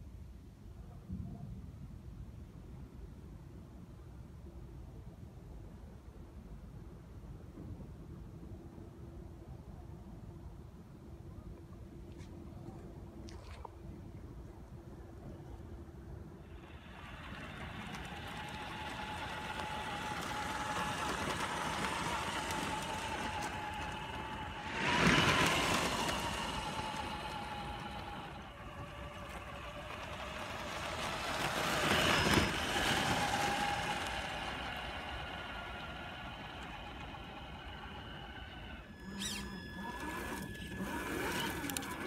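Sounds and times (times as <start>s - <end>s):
electric motor whine: 16.5s - 42.0s
tyres crunching on gravel: 17.2s - 35.1s.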